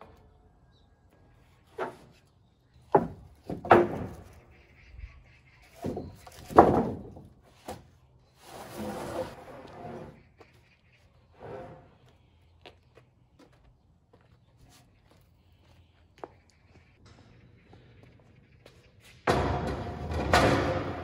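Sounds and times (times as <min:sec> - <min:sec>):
wooden boards knocking: 0:02.9 - 0:04.4, 0:05.8 - 0:07.8
board scraping: 0:08.4 - 0:10.4, 0:11.3 - 0:12.1.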